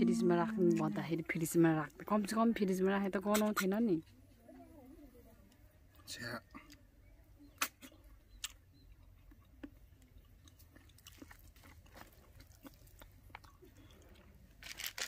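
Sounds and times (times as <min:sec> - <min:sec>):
person chewing food: 0:07.6 - 0:15.0.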